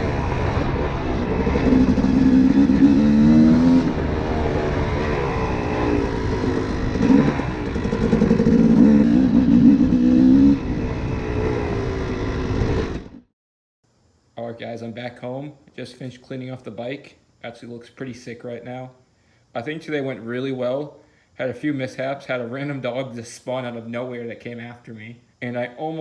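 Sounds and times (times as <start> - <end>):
dirt bike engine revving: 0.0 - 13.3.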